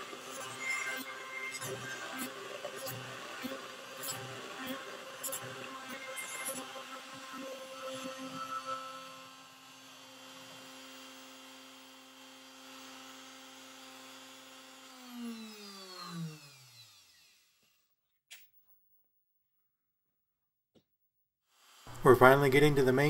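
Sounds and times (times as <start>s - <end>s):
spindle whining and spinning down: 0.0s - 9.5s.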